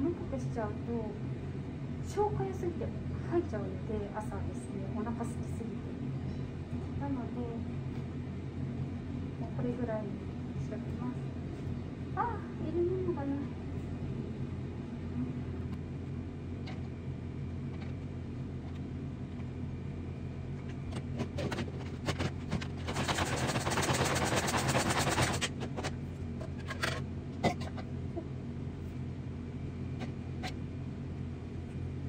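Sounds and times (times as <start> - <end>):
steady low hum: 0.0 - 32.0
rapid rattling: 21.1 - 26.0.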